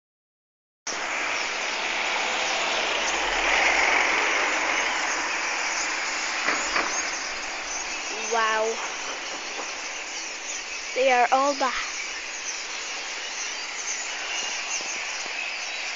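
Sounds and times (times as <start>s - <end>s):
large flock of birds calling: 1.2s - 15.9s.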